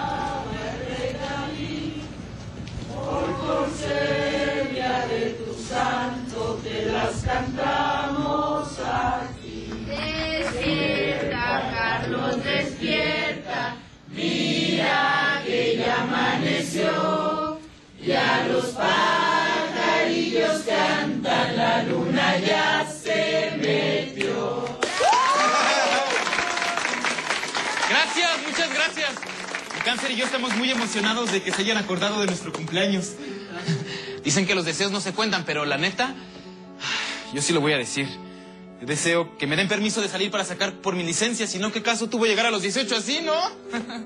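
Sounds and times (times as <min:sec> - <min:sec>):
group singing a birthday song: 0:00.0 - 0:25.0.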